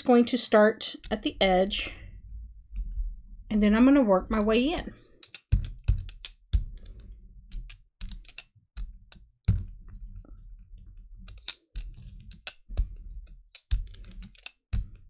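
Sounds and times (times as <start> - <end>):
low rolling rumble: 1.2 - 4.9.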